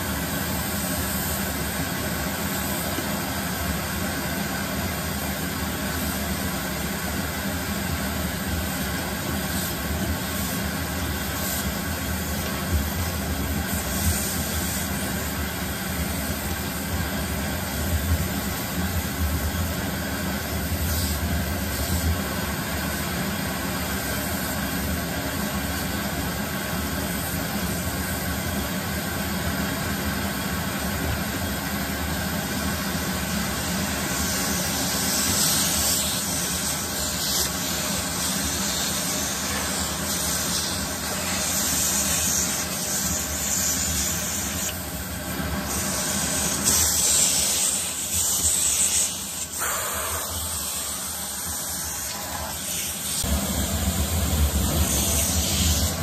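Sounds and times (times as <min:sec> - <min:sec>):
vacuum cleaner running: 0:00.0 - 0:56.0
hair sucked into nozzle: 0:45.9 - 0:56.0.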